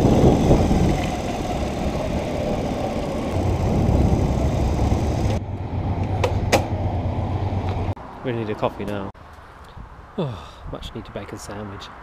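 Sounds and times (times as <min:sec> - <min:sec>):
moped engine running: 0:00.0 - 0:07.9.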